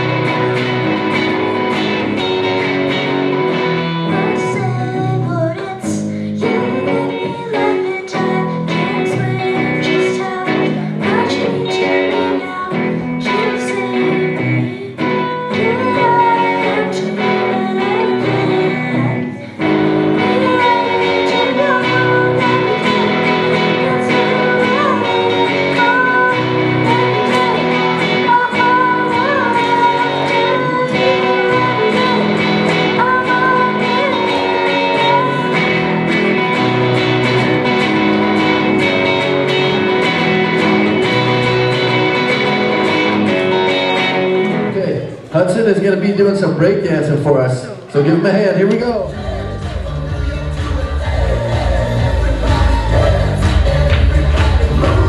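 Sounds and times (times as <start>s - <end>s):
guitar through sound system: 0.0s - 55.0s
boy singing into a microphone: 4.0s - 36.6s.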